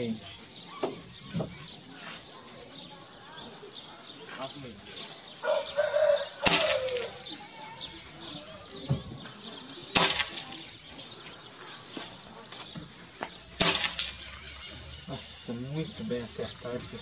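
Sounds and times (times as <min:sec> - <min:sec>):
air rifle shots: 0:06.4 - 0:07.1, 0:09.9 - 0:10.6, 0:13.6 - 0:14.2.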